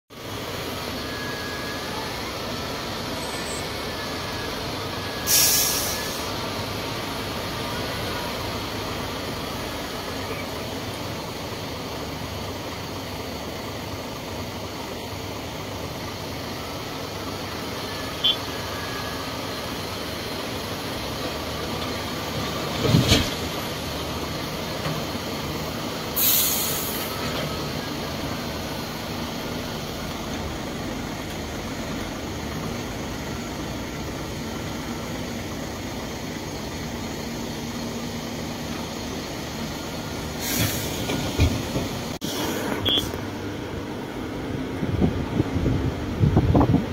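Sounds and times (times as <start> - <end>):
heavy diesel machinery running: 0.1 - 46.9
short high hisses: 5.2 - 6.4, 26.2 - 27.2, 40.4 - 41.1.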